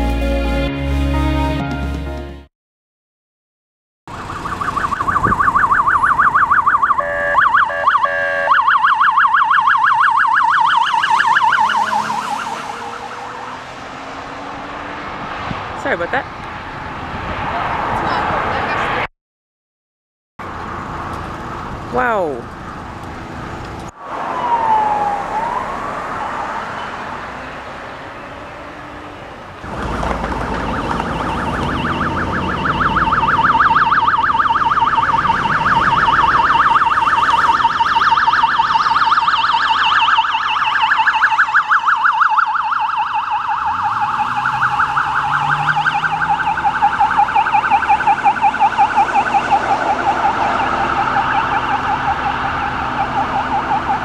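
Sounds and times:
police siren yelp: 4.1s - 13.6s, 24.1s - 27.3s, 28.6s - 54.0s
police siren wail: 4.1s - 15.2s, 24.0s - 54.0s
vehicle engine speeding up: 10.9s - 19.1s, 22.6s - 39.8s, 43.0s - 54.0s.

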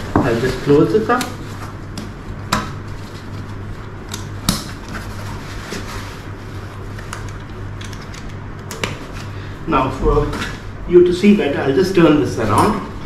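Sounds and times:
handling rustle: 2.8s - 7.8s.

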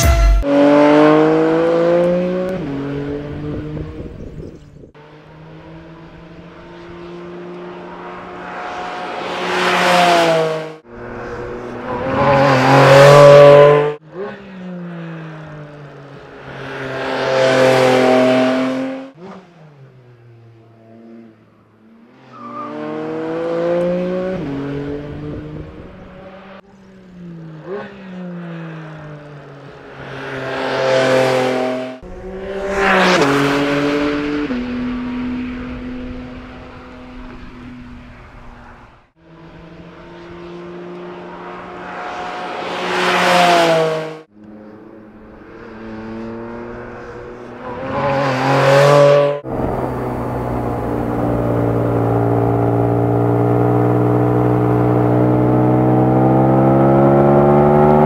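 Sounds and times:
race car engine revving: 0.4s - 4.1s, 45.1s - 58.0s.

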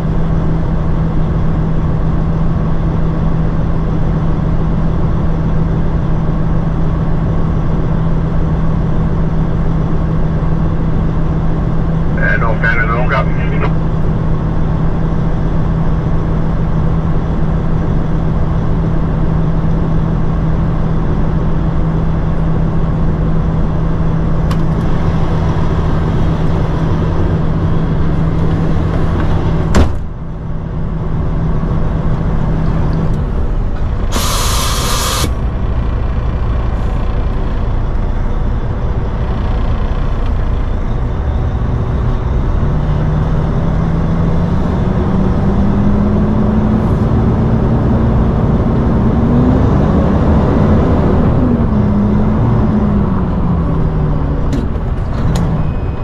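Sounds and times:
diesel truck engine idling: 7.2s - 16.8s, 19.5s - 42.6s
air release hiss: 34.1s - 35.4s.

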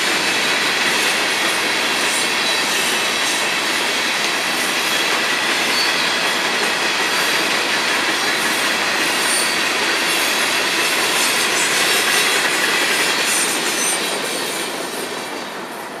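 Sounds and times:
train wheels clattering on rails: 0.0s - 16.0s
thin high wheel squeal: 5.6s - 6.2s.

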